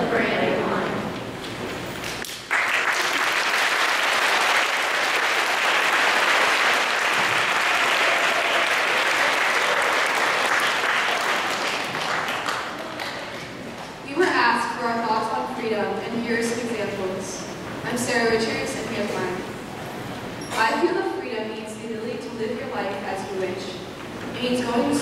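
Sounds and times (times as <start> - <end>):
audience applauding: 2.1 - 13.9.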